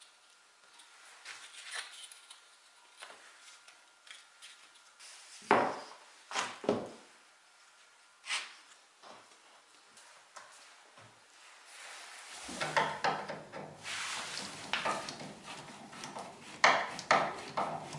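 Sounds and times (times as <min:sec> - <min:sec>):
wooden strips tapping and rubbing: 0:12.5 - 0:17.9
boards knocking on bench: 0:12.6 - 0:13.7.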